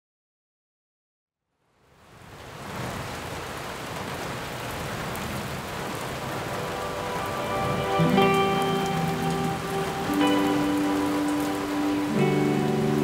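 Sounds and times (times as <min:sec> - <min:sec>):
rain falling on foliage: 0:01.5 - 0:13.0
music with long held notes: 0:06.2 - 0:13.0.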